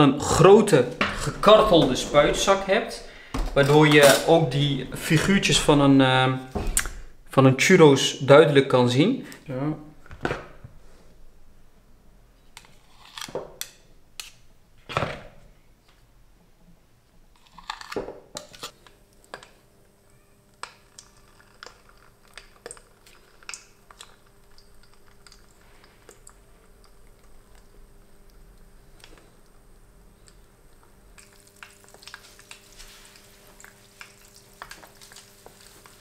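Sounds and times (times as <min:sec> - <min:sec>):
faint steady hum: 0:15.4 - 0:36.0
batter frying in oil: 0:19.9 - 0:36.0.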